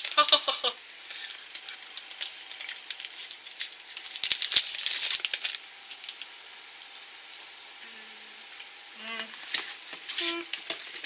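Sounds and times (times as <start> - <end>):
wrapper crinkling: 0.0 - 6.3, 9.1 - 11.0.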